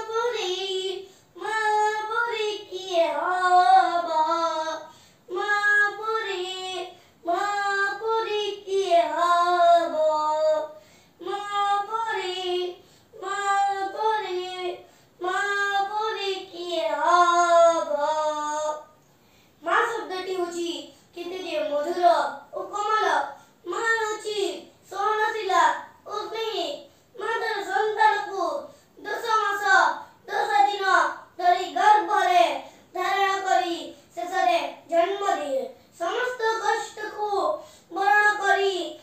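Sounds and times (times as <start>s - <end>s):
child singing: 0.0s - 19.0s, 19.6s - 39.0s.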